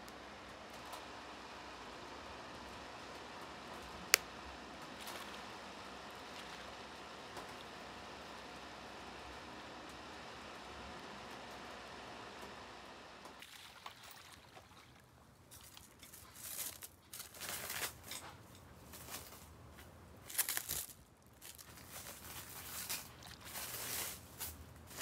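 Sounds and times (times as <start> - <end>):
charcoal crackling and ticking: 2.6 - 11.5, 15.1 - 25.0.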